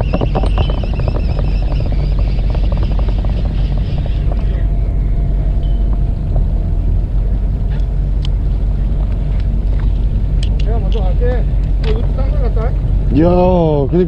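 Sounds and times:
fishing reel ticking: 0.0s - 4.7s
boat engine droning: 0.0s - 14.0s.

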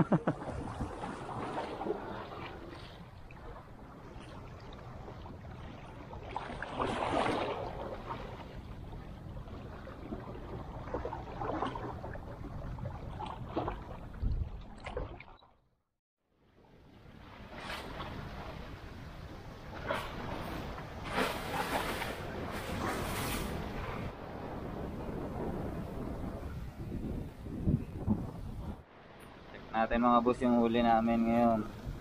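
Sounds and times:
sea waves lapping against rocks: 0.4s - 8.7s.

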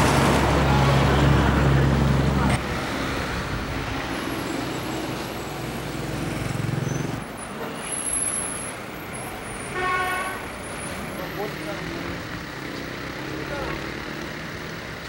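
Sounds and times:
street traffic: 0.0s - 15.0s
car horn: 9.6s - 10.5s
vehicle engine running: 11.2s - 15.0s.

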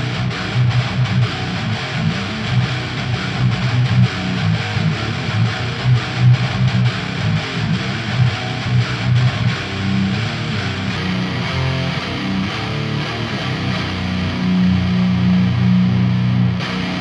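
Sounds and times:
distorted electric guitar riff: 0.0s - 17.0s.

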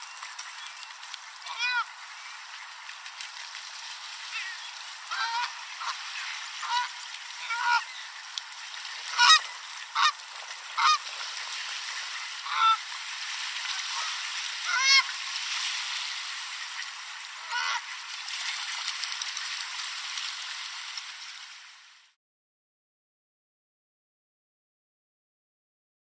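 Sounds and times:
small waves lapping shore: 0.0s - 22.2s
geese honking: 1.4s - 2.8s, 4.2s - 8.4s, 9.0s - 11.1s, 12.0s - 12.9s, 13.7s - 15.2s, 16.6s - 18.0s.

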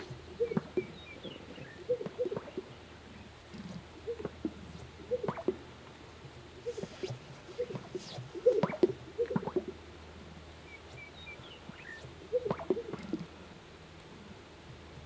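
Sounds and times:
low hollow cooing notes: 0.0s - 5.7s, 6.4s - 9.8s, 10.9s - 13.4s.

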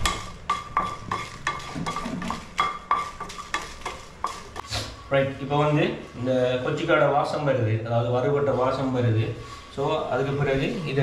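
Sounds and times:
wooden spatula scraping frying pan: 0.0s - 5.0s.

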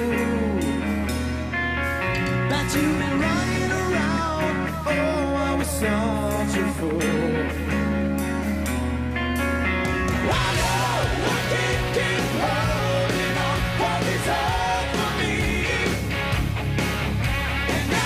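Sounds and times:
bending lead guitar melody: 0.0s - 18.0s
hard rock band playing live: 0.0s - 18.0s.

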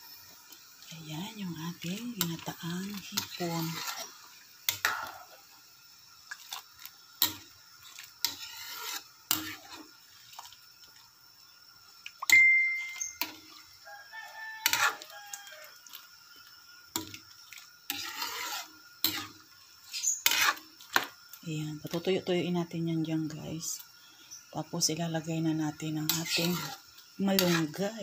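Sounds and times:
metal spatula scraping steel wok: 1.8s - 5.4s, 7.2s - 10.5s, 12.3s - 13.6s, 14.4s - 15.6s, 17.8s - 21.2s, 25.8s - 28.0s.

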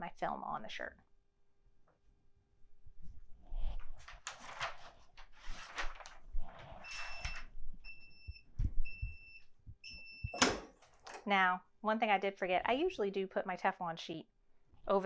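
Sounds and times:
rustling and handling noises: 3.0s - 9.2s.

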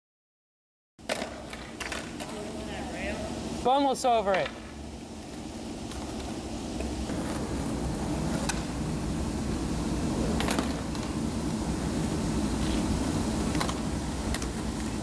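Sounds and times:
skateboard clacks: 1.0s - 2.6s, 5.3s - 8.8s, 10.2s - 11.2s, 13.5s - 15.0s
skateboard wheels rolling on asphalt: 1.0s - 3.3s, 4.2s - 15.0s.

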